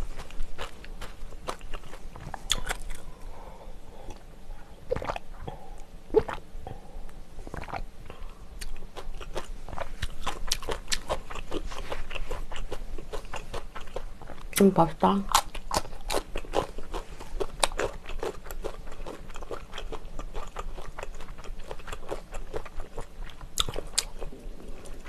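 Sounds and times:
chewing with wet mouth clicks: 0.0 - 3.1, 4.9 - 5.3, 7.5 - 14.7, 15.3 - 25.0.

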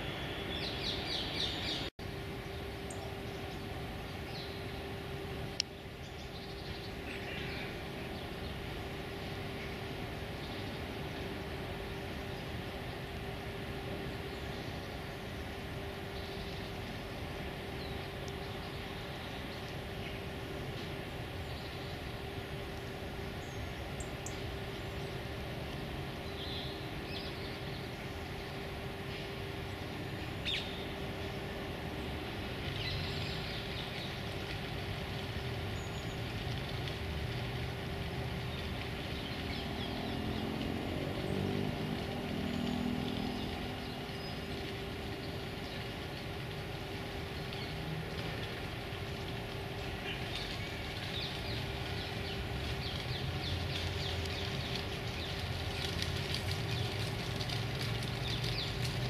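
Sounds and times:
constant hum: 0.0 - 59.0
crackling rustle: 0.0 - 59.0
distant road traffic rumble: 0.0 - 59.0
passing engine: 39.5 - 45.1.

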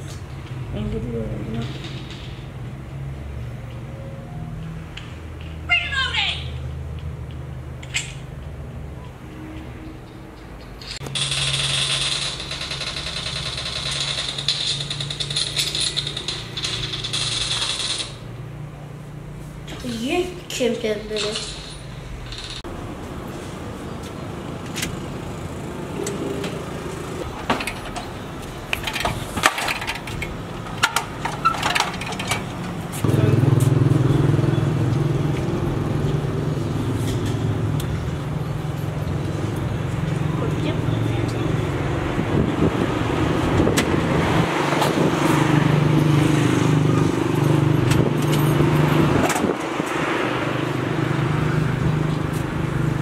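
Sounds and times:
sharp clicks and rattles: 1.5 - 2.8, 10.4 - 18.3, 21.1 - 22.7, 27.2 - 33.0
motorcycle rattling being wheeled: 10.6 - 18.5, 24.5 - 53.0
vehicle engine running: 30.4 - 44.1.

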